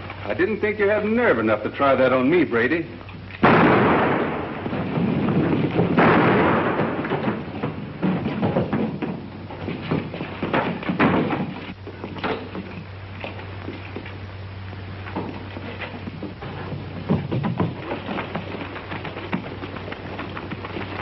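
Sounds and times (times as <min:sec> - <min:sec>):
steady low hum: 0:00.0 - 0:21.0
loud crash: 0:03.4 - 0:08.9
thuds knocks and scuffling: 0:03.4 - 0:14.2, 0:15.0 - 0:21.0.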